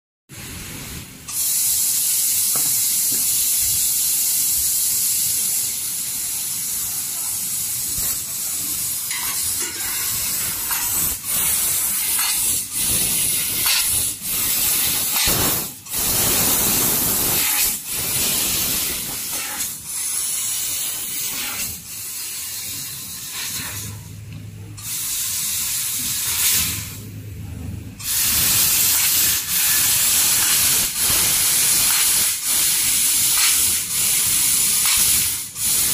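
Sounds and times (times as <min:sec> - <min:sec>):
loud hiss of rushing gas: 0:00.4 - 0:24.0, 0:24.8 - 0:27.0, 0:28.0 - 0:35.9
low machine hum: 0:27.0 - 0:28.0.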